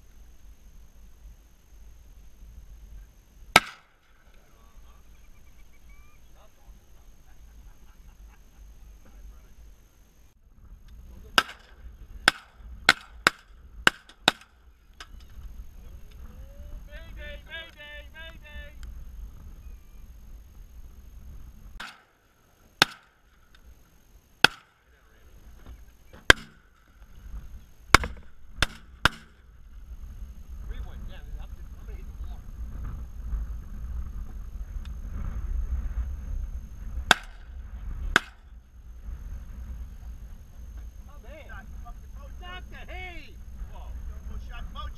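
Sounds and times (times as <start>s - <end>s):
steady low rumble: 0.0s - 44.9s
shotgun blasts: 3.5s - 4.2s, 11.3s - 14.6s, 21.8s - 22.2s, 22.8s - 23.3s, 24.4s - 24.8s, 26.3s - 26.8s, 27.9s - 29.4s, 37.0s - 38.5s.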